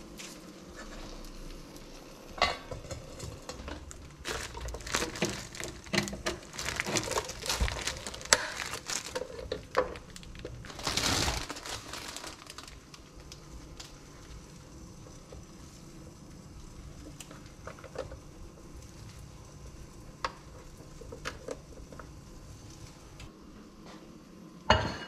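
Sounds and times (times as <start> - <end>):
rustling: 4.2 - 13.0.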